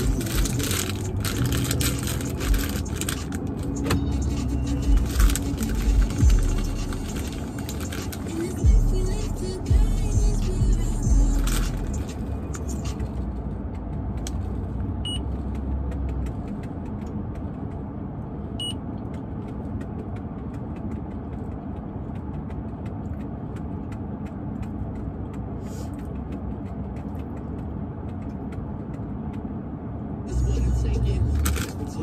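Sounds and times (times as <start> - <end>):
chewing potato chips: 0.0 - 3.6, 4.8 - 12.1
car engine idling: 0.0 - 17.9.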